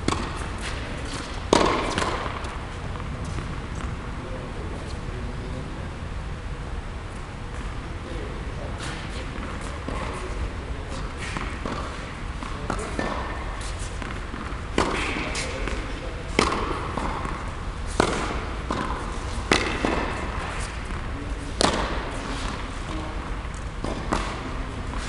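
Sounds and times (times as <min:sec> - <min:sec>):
tennis balls struck with rackets: 0:00.0 - 0:04.0, 0:10.9 - 0:25.0.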